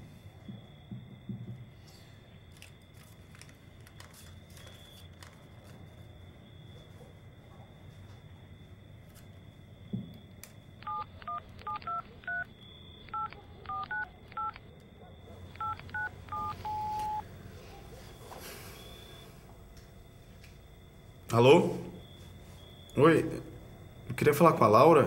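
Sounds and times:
phone keypad beeps: 0:10.8 - 0:12.5, 0:13.1 - 0:14.6, 0:15.6 - 0:17.2.

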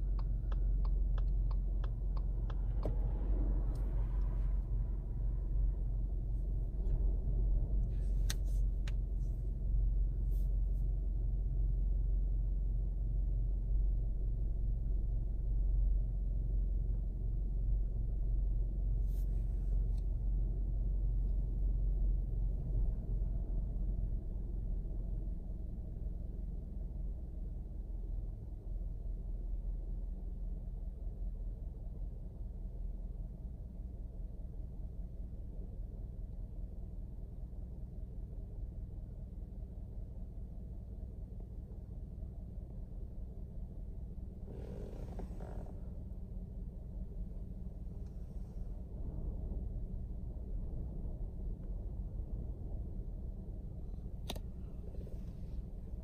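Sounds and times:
turn signal ticking: 0:00.0 - 0:03.1
car engine idling: 0:00.0 - 0:27.8, 0:40.1 - 0:56.0.

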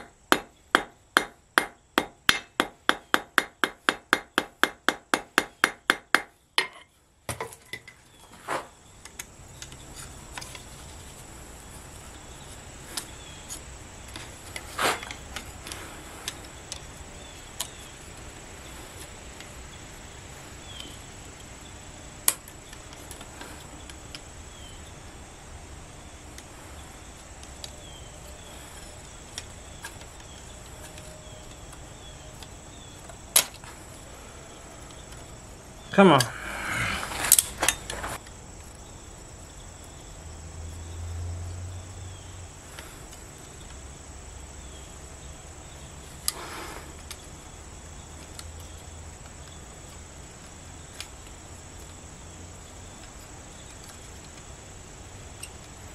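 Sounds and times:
hammer striking steel on anvil: 0:00.0 - 0:06.8.

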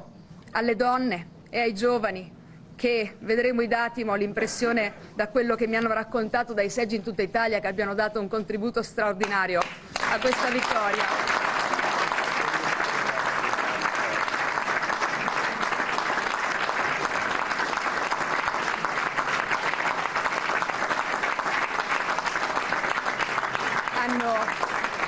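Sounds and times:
audience applauding: 0:09.8 - 0:25.0.

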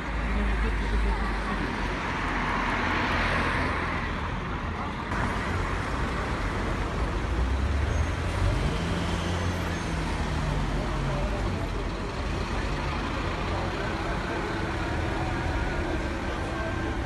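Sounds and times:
cars driving slowly past: 0:00.0 - 0:17.0.

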